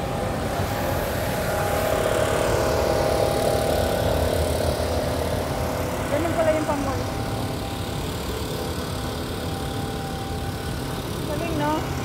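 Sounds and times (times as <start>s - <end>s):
leaf blower engine running: 0.0s - 12.0s.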